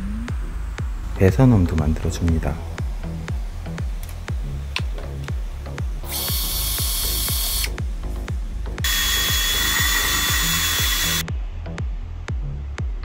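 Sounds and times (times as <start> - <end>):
drill cutting disc into wood: 6.0 - 7.8, 8.8 - 11.2.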